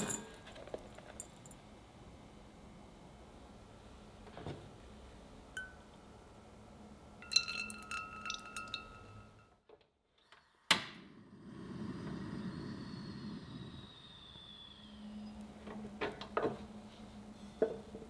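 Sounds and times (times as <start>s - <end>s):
pan clinking and ringing: 0.0s - 0.4s, 7.2s - 9.5s
gas flame rushing: 11.0s - 15.5s.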